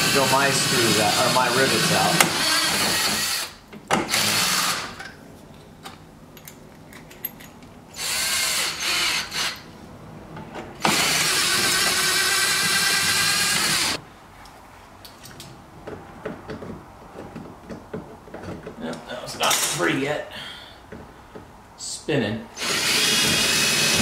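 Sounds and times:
cordless drill drilling: 0.0s - 5.0s, 8.0s - 9.6s, 10.8s - 14.0s, 22.6s - 24.0s.

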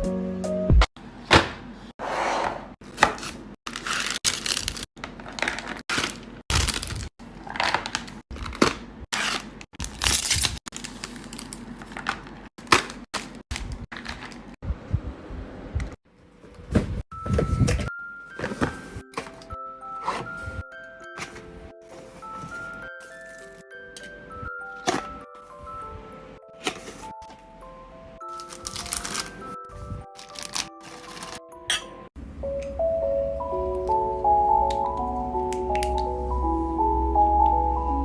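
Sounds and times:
packaging crinkling and tearing: 3.7s - 14.5s, 28.3s - 29.5s, 30.1s - 31.4s.

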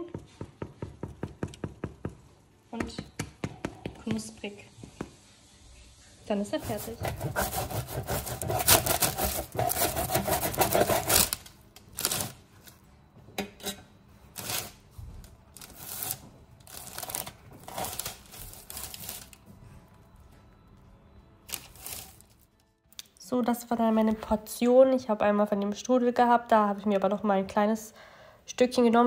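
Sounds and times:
knife cutting crisp pastry crust: 6.6s - 11.4s.

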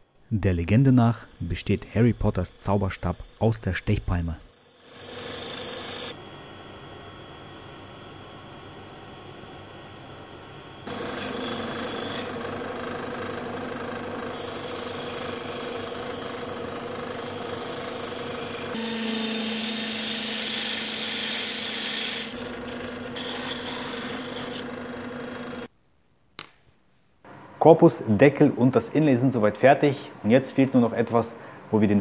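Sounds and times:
turning tool cutting wood: 0.5s - 6.1s, 10.9s - 25.7s
wood lathe motor hum: 0.6s - 6.2s, 10.8s - 25.7s.

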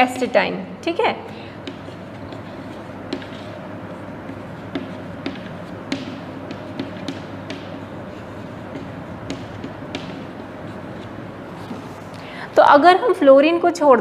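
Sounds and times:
steady background noise: 0.0s - 14.0s
chalk tapping and scratching: 1.5s - 12.2s.

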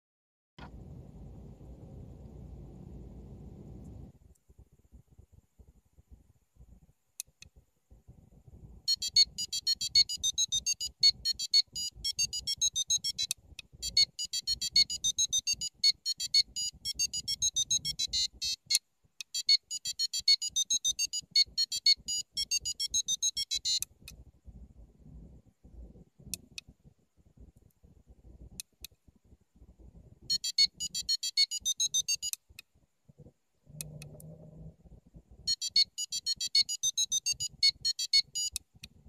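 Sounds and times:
buzzer beeping melody: 8.9s - 23.8s, 30.3s - 32.3s, 35.5s - 38.6s.

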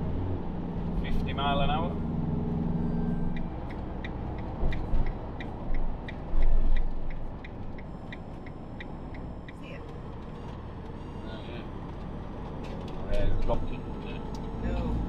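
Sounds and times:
engine and road rumble: 0.0s - 15.0s
light regular ticking: 3.3s - 11.0s.

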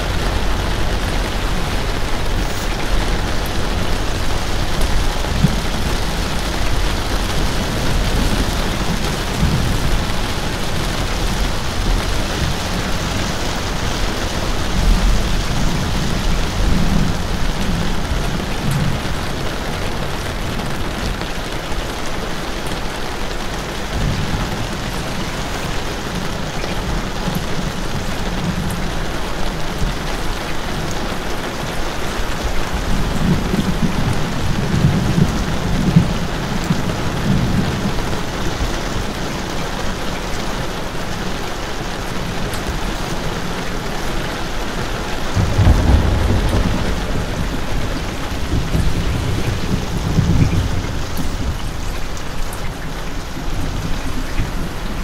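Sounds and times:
heavy rain hissing: 0.0s - 55.0s
deep low rumble: 45.3s - 52.5s.

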